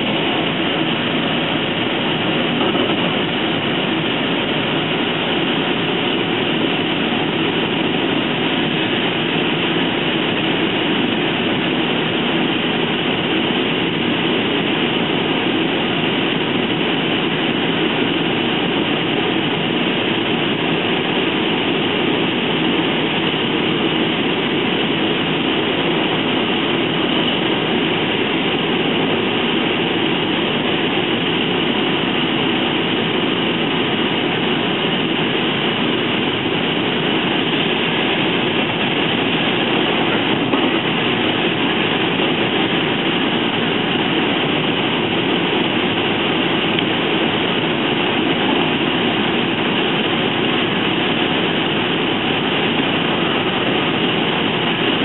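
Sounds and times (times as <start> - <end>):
train coach rumbling and rattling: 0.0 - 9.3, 37.0 - 43.8.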